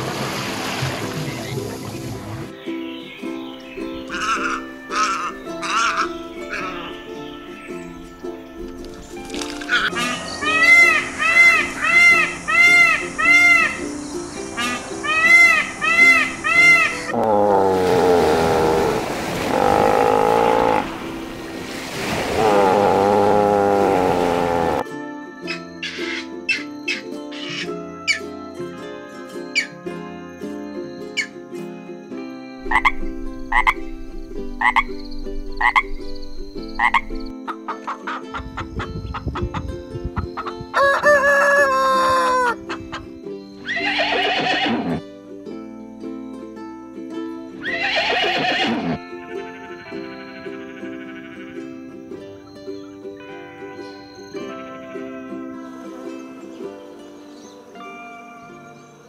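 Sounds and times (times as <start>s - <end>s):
surf washing: 0.0s - 2.6s, 9.4s - 24.8s
background music: 0.7s - 59.0s
horse whinnying: 16.7s - 21.0s, 22.3s - 24.8s, 43.7s - 45.0s, 47.6s - 49.1s
rooster crowing: 40.7s - 42.6s
seal pup wavering cries: 47.6s - 49.1s.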